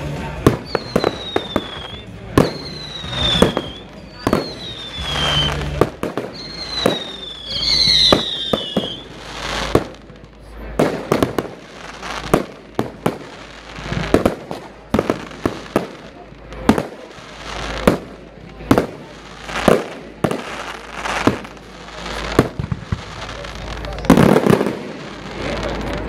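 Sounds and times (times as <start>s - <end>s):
firework high whistle: 0.0s - 9.9s
fireworks bangs and pops: 0.0s - 26.0s.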